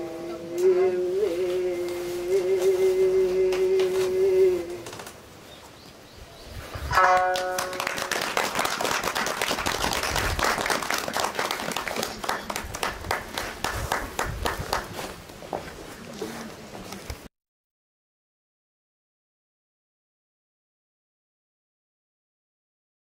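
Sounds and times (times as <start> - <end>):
plucked shamisen note: 6.9 - 8.2
audience applause: 7.3 - 14.9.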